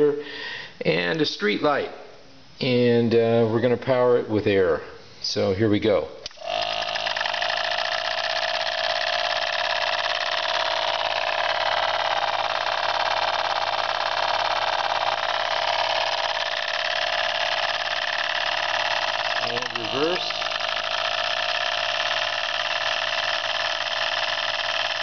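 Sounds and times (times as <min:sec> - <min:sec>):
air pump humming: 0:06.2 - 0:25.0
model steam engine chuffing: 0:06.6 - 0:25.0.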